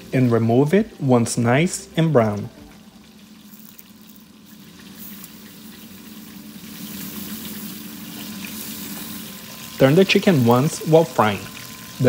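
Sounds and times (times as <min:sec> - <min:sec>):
batter sizzling on waffle iron: 0:03.0 - 0:12.0.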